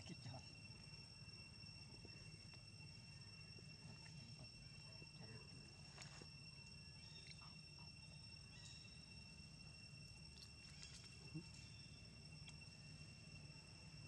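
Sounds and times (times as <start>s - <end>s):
high insect drone: 0.0s - 14.0s
soft ticks and light rustles: 10.4s - 11.6s, 12.4s - 12.7s.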